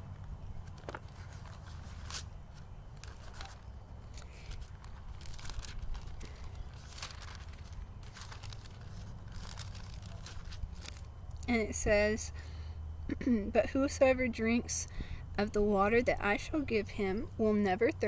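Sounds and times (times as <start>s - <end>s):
low background rumble: 0.0s - 18.0s
paper pages rustling: 0.1s - 11.2s.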